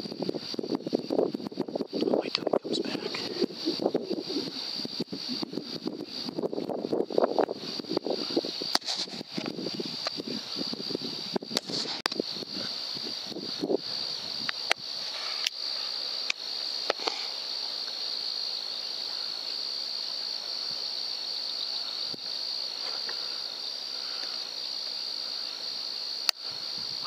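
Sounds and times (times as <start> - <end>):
crickets trilling: 0.0 - 27.0.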